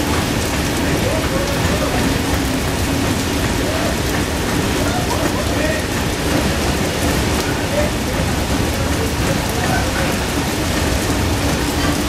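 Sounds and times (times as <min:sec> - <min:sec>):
freight train rumbling past: 0:00.0 - 0:12.0
heavy rain pouring on paving: 0:00.0 - 0:12.0.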